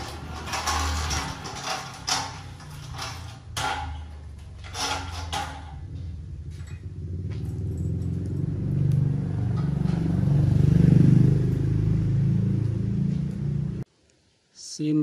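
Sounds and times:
motor engine running: 5.4 - 13.8.

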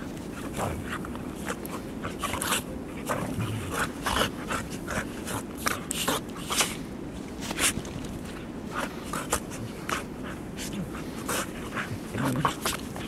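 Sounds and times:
dogs huffing and scuffling: 0.0 - 13.0.

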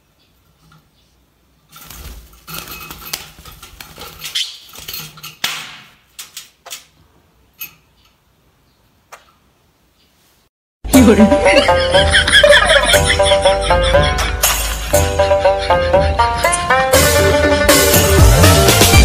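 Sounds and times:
claws scrabbling on metal: 1.6 - 7.0
bird wings flapping: 1.7 - 5.1.

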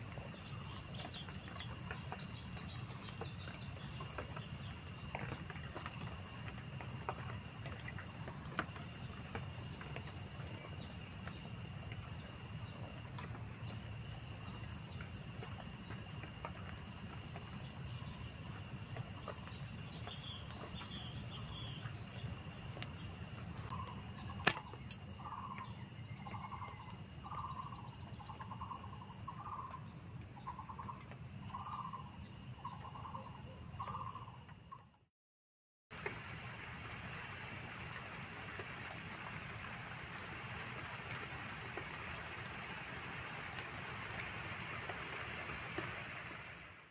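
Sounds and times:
insect chorus shrilling: 0.0 - 34.8.

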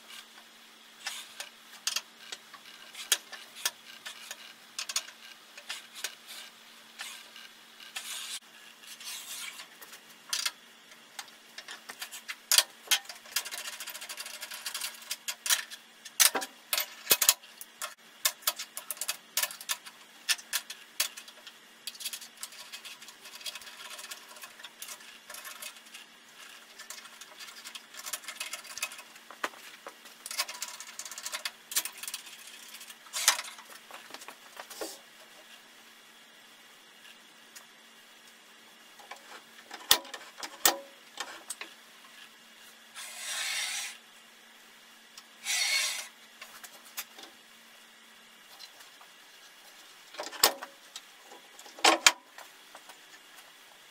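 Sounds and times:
metal gauge clicking and scraping: 11.2 - 29.3.

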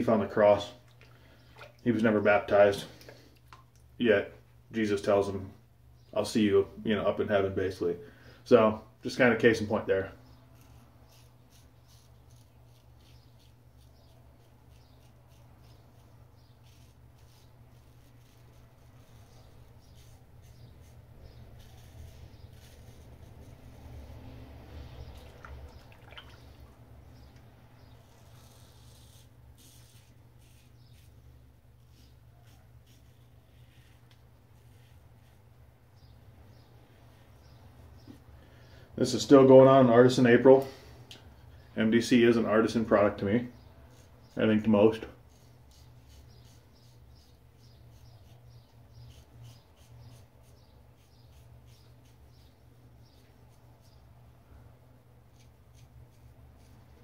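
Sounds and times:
razor scraping stubble: 9.4 - 24.2, 27.2 - 35.4, 42.2 - 54.0, 55.3 - 57.0.

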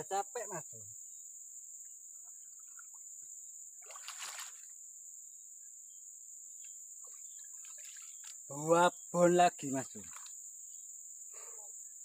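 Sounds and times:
high-pitched insect chorus: 0.0 - 12.0
fish splashing in water: 3.8 - 4.7, 7.0 - 8.4.

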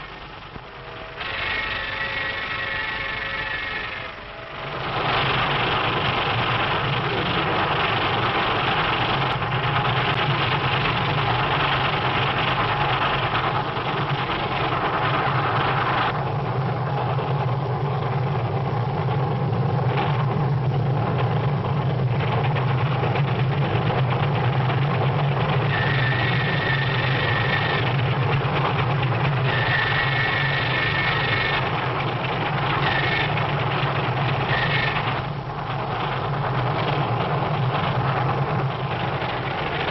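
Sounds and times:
high steam whistle: 0.0 - 6.9, 25.4 - 28.2, 29.3 - 31.8, 32.6 - 33.4, 34.3 - 35.2
steam locomotive rumble and clatter: 0.0 - 39.9.

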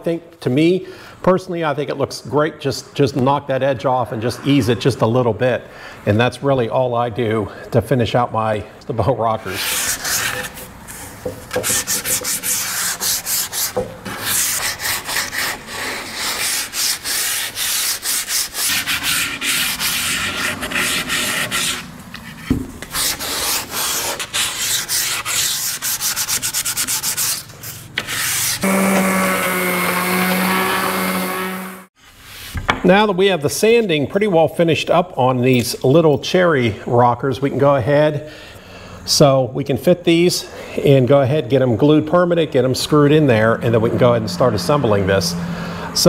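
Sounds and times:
sandpaper rubbing wood: 9.4 - 32.6
electric palm sander running: 28.2 - 31.9.

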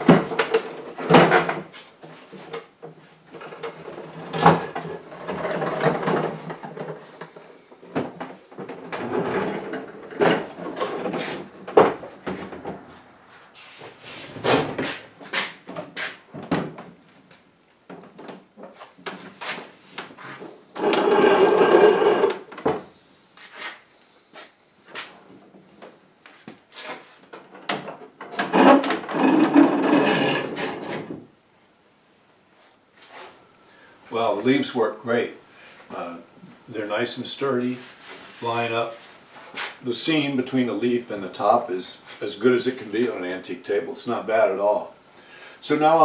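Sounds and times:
wooden knocks and clunks: 0.0 - 1.8, 4.2 - 12.9, 15.6 - 17.0
wooden feet scraping on concrete: 12.3 - 16.3, 18.6 - 22.5, 23.4 - 25.2, 28.5 - 31.1, 37.8 - 39.8.

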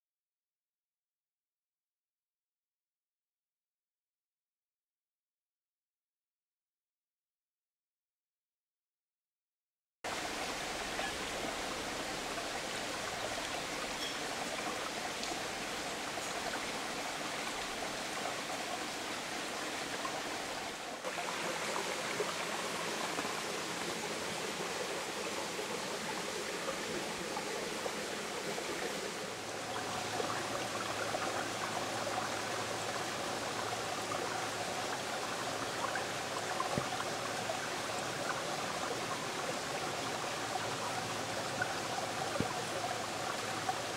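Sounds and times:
stream running over rocks: 10.1 - 43.9.

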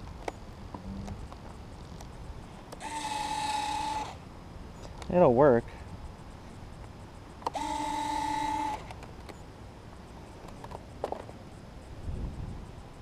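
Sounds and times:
small electric motor whirring: 2.7 - 4.2, 7.4 - 9.0.

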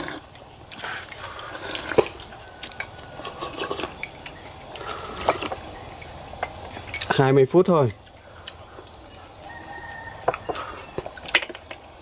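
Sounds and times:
utensils clinking against bowls: 0.0 - 8.3, 9.1 - 12.0.

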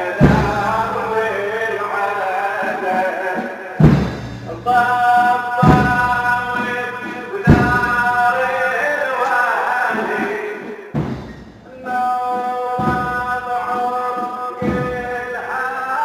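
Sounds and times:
heavy thuds: 0.0 - 2.2, 3.8 - 9.0, 11.0 - 15.6
man chanting over loudspeakers: 0.0 - 11.0, 11.7 - 16.0.

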